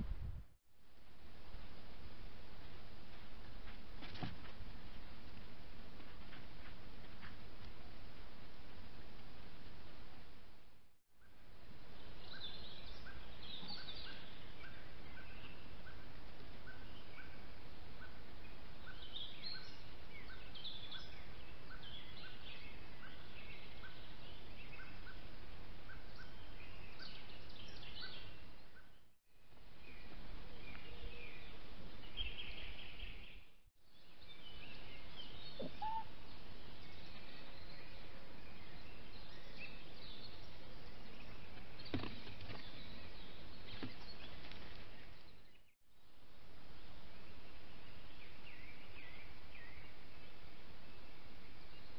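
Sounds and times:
songbirds singing and calling: 11.2 - 51.9.

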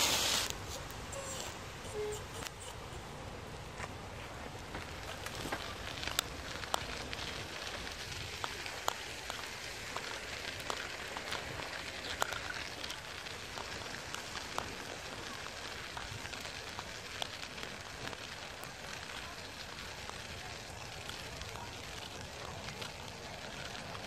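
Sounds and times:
bicycle tyres hissing on asphalt: 0.0 - 24.0
bicycle clicks and rattles: 5.0 - 18.2.

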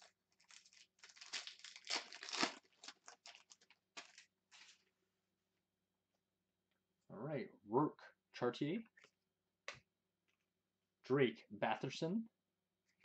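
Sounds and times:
foil wrapper crackling: 0.0 - 4.8.

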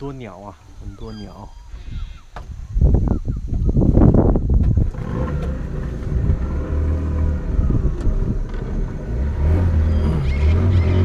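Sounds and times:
outboard motor droning: 4.8 - 11.0.

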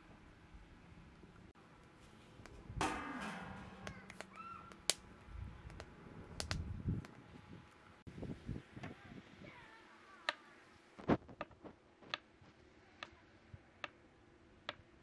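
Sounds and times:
animal call with falling pitch: 3.8 - 4.9
sharp clicks and knocks: 5.6 - 7.2.

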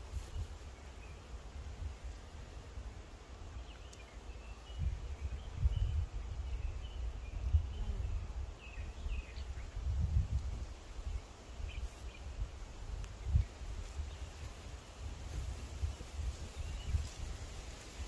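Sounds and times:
wind buffeting microphone: 4.7 - 8.4, 9.0 - 18.0.

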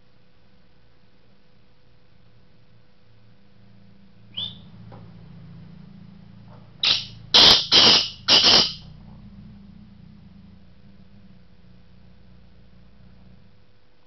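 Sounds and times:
francolin calling harsh notes: 6.8 - 8.9.

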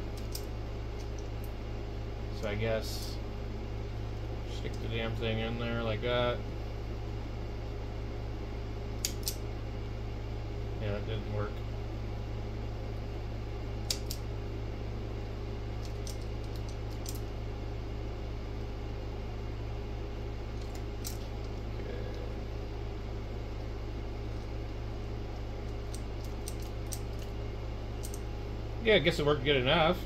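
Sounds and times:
low hum: 0.0 - 30.0
crimping pliers clicking: 0.2 - 1.3, 9.0 - 9.4, 13.9 - 14.2, 15.8 - 17.2, 25.7 - 27.3, 28.0 - 28.2.

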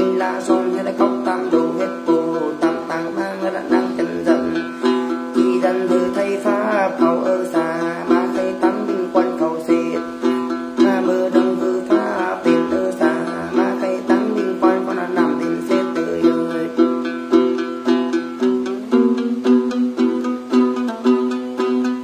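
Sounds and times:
man singing chant: 0.0 - 17.0
plucked lute: 0.0 - 22.0.

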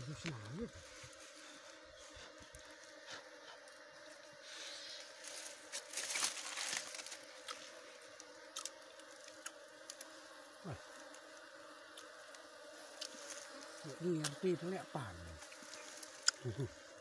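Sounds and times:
honeybees buzzing: 0.0 - 17.0
honeycomb crackling and tearing: 5.2 - 14.4, 15.1 - 16.6.

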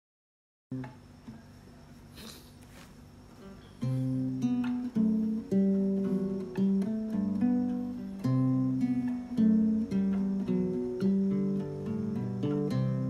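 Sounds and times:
acoustic guitar strumming chords: 3.4 - 13.0.

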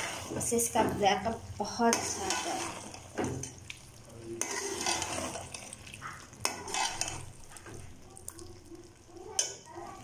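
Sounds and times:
metal spoon scraping cooking pot: 1.9 - 3.2, 4.4 - 5.8, 6.4 - 7.4.

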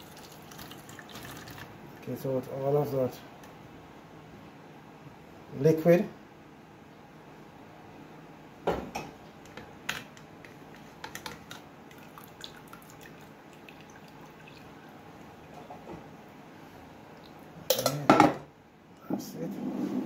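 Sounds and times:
water dripping and running: 0.0 - 2.2, 10.7 - 16.1, 17.1 - 17.6.

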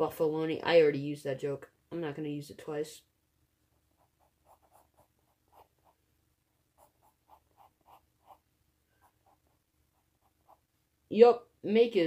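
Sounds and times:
pencil scratching on paper: 3.8 - 6.0, 6.7 - 10.7.

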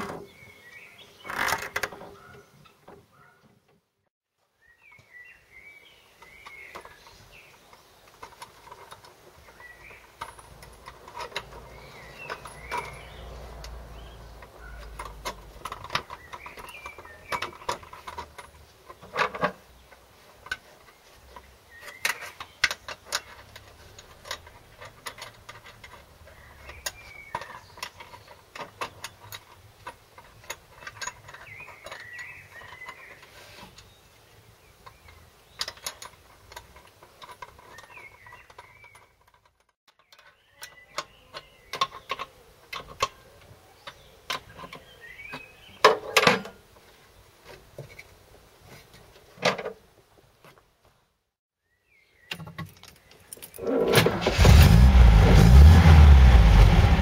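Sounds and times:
metal parts clicking and rattling: 7.7 - 33.9, 34.8 - 46.5, 52.3 - 54.0.

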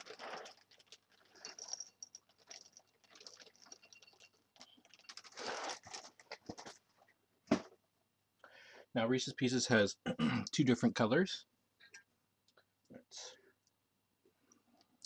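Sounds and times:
cereal rustling and pattering: 0.0 - 4.0, 4.8 - 6.8.

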